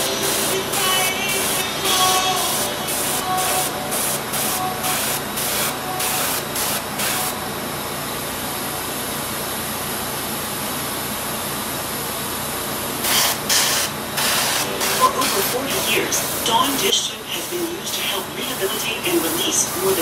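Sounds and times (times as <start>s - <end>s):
airbrush spraying paint: 0.0s - 7.4s, 13.0s - 20.0s.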